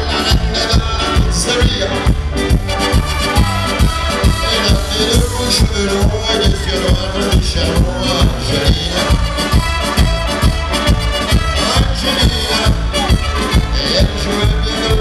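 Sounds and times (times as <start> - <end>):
man singing into microphone: 0.0 - 9.7, 11.2 - 15.0
accordion: 0.0 - 15.0
drums fast beat: 0.0 - 15.0
trumpets: 2.6 - 5.7, 8.7 - 14.9.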